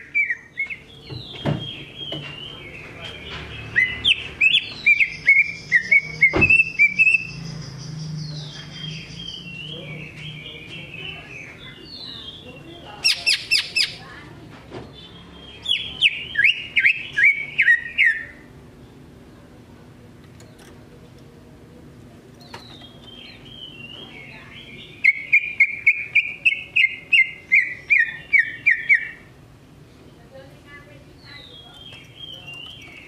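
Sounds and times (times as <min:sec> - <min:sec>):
bird singing whistled notes: 0:03.6 - 0:11.0, 0:15.0 - 0:18.4, 0:22.6 - 0:29.2.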